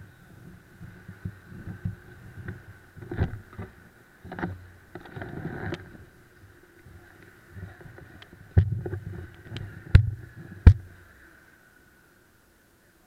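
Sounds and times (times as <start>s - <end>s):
faint steady hum: 0.0s - 13.0s
camera thumps and knocks: 8.5s - 10.9s.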